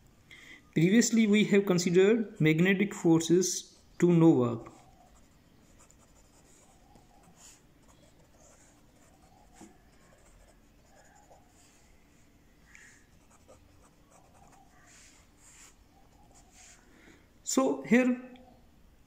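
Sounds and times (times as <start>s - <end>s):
felt-tip pen scratching on paper: 4.7s - 11.7s, 13.2s - 16.6s.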